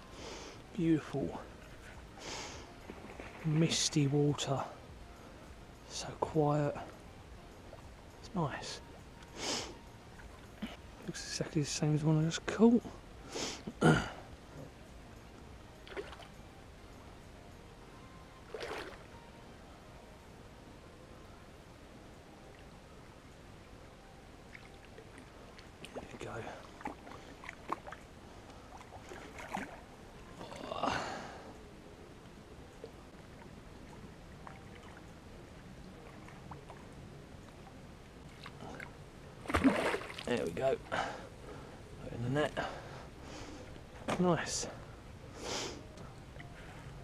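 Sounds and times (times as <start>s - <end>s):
faint hiss of water and air: 0.0s - 19.4s, 20.9s - 47.0s
person sniffing: 9.4s - 9.8s, 45.4s - 45.8s.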